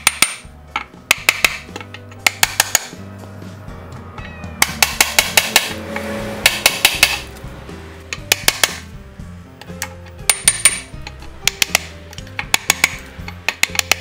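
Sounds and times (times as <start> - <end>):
hammer striking steel: 0.0 - 3.0, 4.2 - 7.3, 8.1 - 8.9, 9.8 - 14.0
background music: 0.0 - 14.0.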